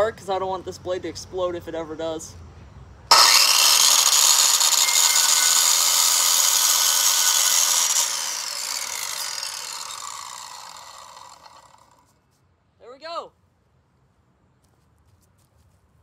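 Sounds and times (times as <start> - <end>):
circular saw cutting wood: 3.1 - 12.0
saw blade winding down: 3.1 - 12.0.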